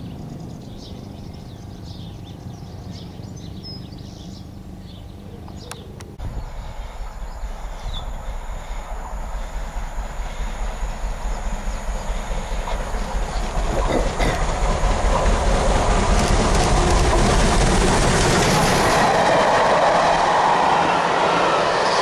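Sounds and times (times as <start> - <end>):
steam locomotive approaching: 6.1 - 22.0
train wheels clattering over track: 6.3 - 21.3.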